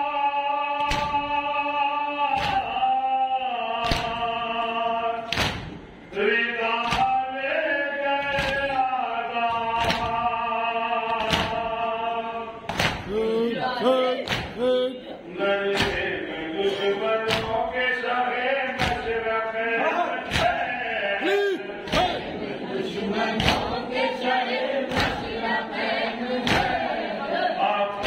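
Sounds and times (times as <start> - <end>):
man chanting: 13.0 - 22.3
chest beating thumps: 14.2 - 14.9, 20.3 - 22.4.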